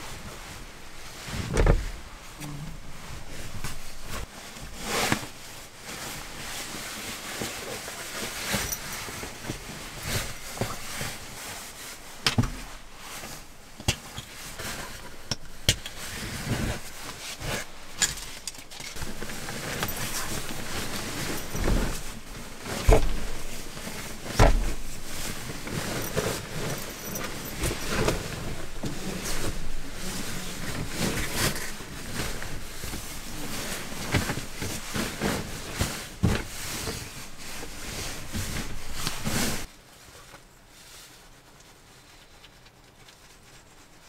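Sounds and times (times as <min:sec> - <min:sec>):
soft knocks and bumps: 0:00.0 - 0:04.3, 0:18.9 - 0:39.6
fabric rustling: 0:00.0 - 0:44.0.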